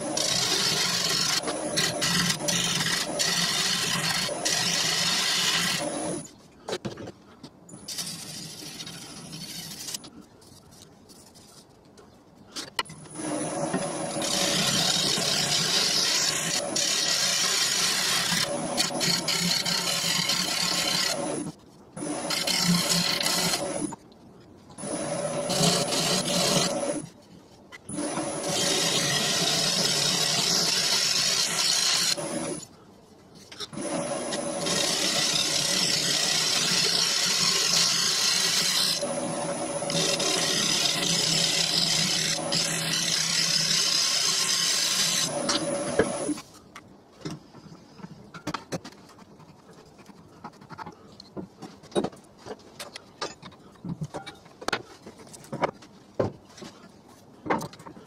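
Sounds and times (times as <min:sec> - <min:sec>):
lathe tool cutting wood: 0:00.0 - 0:06.3, 0:13.2 - 0:23.9, 0:24.8 - 0:27.0, 0:27.9 - 0:32.6, 0:33.8 - 0:46.4.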